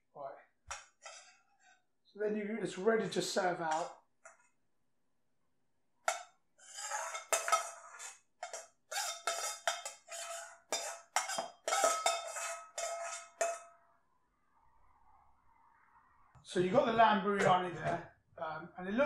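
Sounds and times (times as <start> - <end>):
metal spoon scraping a wok: 1.0 - 1.4, 6.6 - 13.7.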